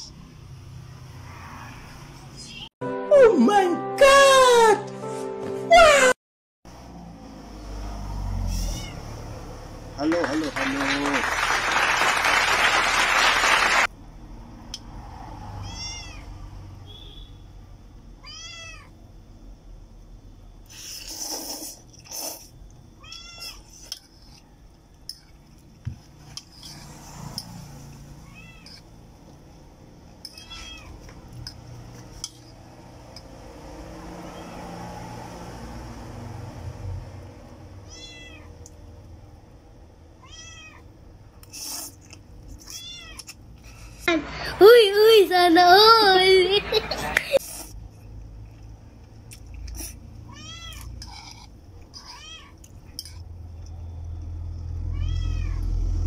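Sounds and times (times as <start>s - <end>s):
cat meowing: 8.6s - 9.1s, 15.6s - 16.3s, 18.2s - 18.9s, 28.2s - 28.8s, 30.3s - 31.0s, 37.9s - 38.6s, 40.2s - 40.9s, 42.7s - 43.3s, 50.3s - 50.9s, 52.0s - 52.6s, 54.9s - 55.6s.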